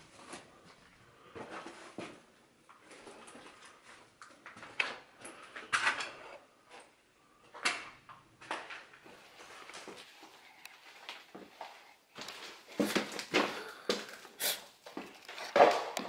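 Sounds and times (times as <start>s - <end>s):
footsteps crunching on debris: 9.0s - 16.0s.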